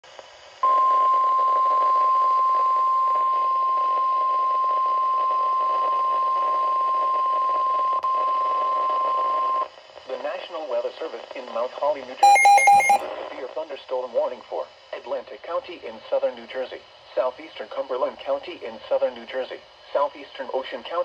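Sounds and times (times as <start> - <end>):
broadcast static hiss: 9.8 - 21.0
high steady alarm beep: 12.2 - 13.0.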